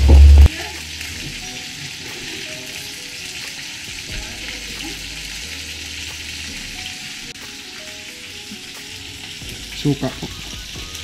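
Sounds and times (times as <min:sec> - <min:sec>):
sauce bubbling and sizzling: 0:00.0 - 0:11.0.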